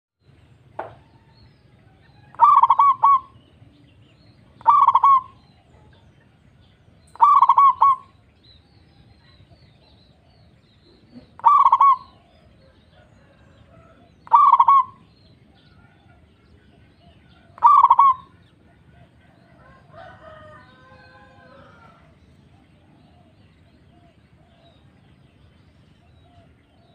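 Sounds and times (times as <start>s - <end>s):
dove cooing: 2.2s - 3.6s, 4.5s - 6.0s, 7.1s - 8.2s, 9.9s - 25.0s.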